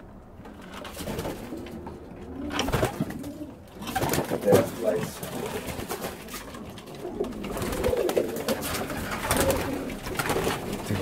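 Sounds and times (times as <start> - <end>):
pigeons cooing: 0.6 - 11.0.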